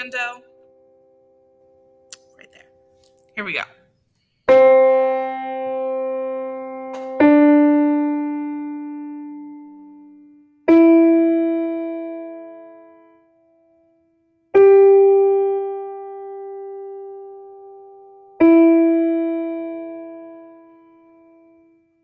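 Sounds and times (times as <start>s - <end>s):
piano single notes: 4.5s - 13.7s, 14.6s - 21.7s.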